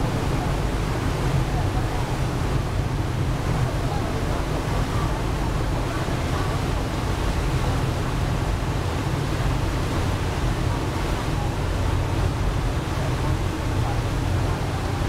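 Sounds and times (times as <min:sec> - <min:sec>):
rush of wind and water: 0:00.0 - 0:15.0.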